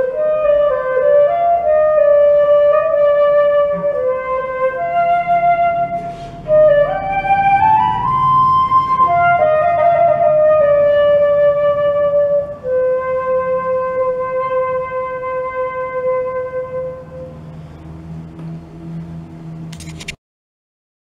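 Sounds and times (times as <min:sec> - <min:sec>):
solo flute melody: 0:00.0 - 0:18.3.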